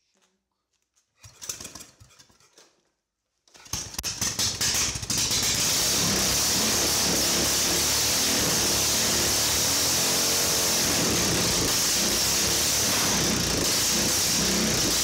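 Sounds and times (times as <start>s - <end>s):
engine cranking and running: 3.6s - 15.0s.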